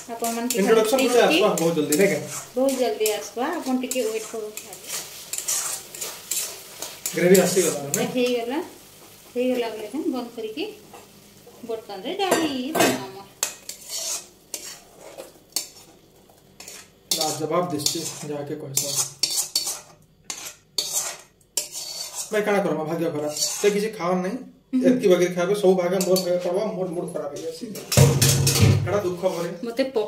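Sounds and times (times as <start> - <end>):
spatula scraping metal pan: 0.0 - 8.4, 12.3 - 16.0, 16.6 - 24.0, 25.9 - 26.5
light sizzle: 0.0 - 30.0.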